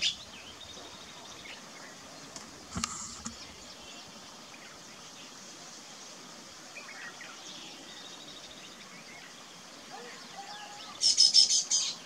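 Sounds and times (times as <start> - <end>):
outdoor background hiss: 0.0 - 12.0
faint bird chirps: 6.7 - 12.0.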